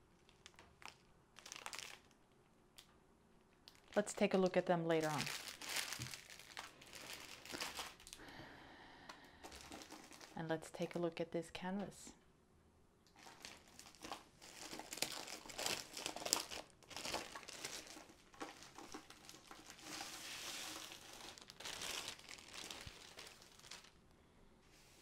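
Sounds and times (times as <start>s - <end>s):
plastic packaging crinkling: 0.2s - 2.3s, 3.6s - 8.3s, 9.4s - 11.0s, 13.1s - 24.0s.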